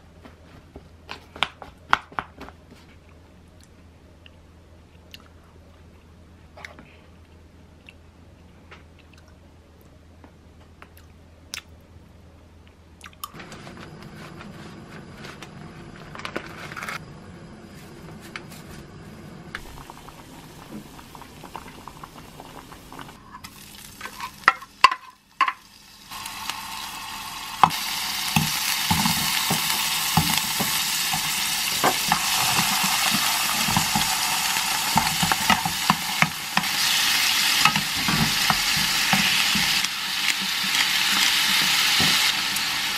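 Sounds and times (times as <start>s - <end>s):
shrimp sizzling in oil: 19.6s - 42.9s
pans knocking: 27.6s - 34.2s
spoon stirring in pan: 27.6s - 42.2s.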